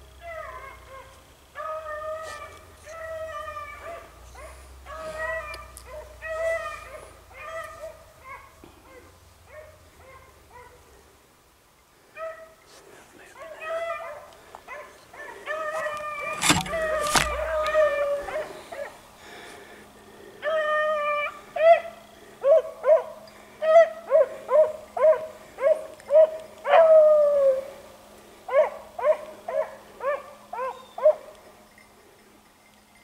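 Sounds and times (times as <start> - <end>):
dogs baying and howling: 0.2 - 10.9, 13.3 - 19.1, 20.3 - 32.2
dogs barking: 0.3 - 10.9, 13.3 - 19.0, 20.4 - 27.5, 28.5 - 31.4
sharp knocks: 16.4 - 17.4.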